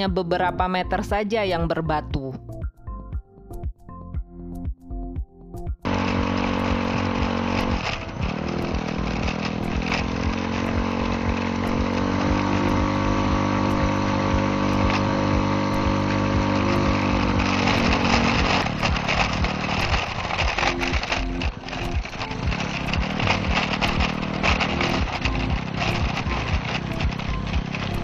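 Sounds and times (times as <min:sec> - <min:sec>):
motor scooter engine running: 0:05.8 - 0:28.0
clicks and knocks from riding: 0:05.9 - 0:15.1, 0:16.6 - 0:28.0.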